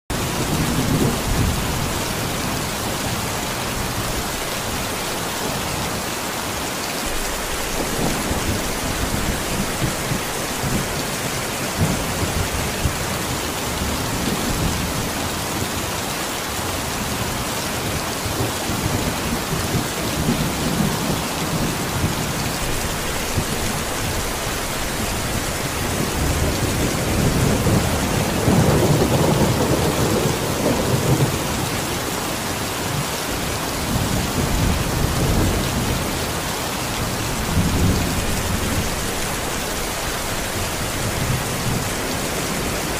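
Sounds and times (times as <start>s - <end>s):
rain on puddle and leaves: 0.1s - 42.9s
low thunder rumbles: 0.3s - 3.2s, 17.8s - 31.8s.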